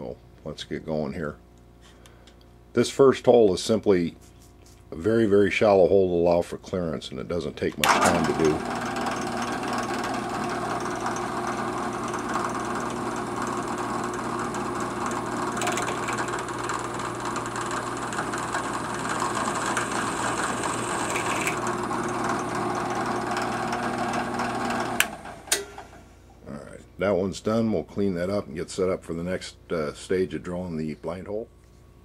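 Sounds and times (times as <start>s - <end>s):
drill press drilling metal: 7.8s - 26.0s.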